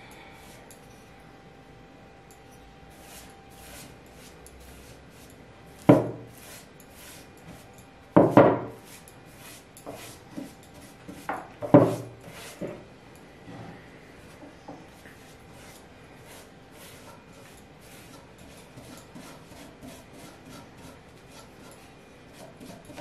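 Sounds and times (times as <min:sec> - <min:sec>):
paintbrush strokes: 0:02.9 - 0:07.7, 0:08.7 - 0:12.8, 0:14.2 - 0:23.0.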